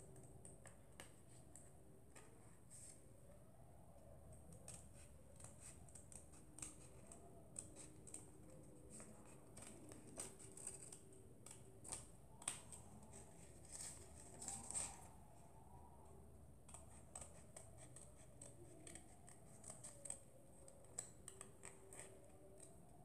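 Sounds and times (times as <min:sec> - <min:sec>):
scissors snipping paper: 0:04.5 - 0:15.2, 0:16.6 - 0:22.8.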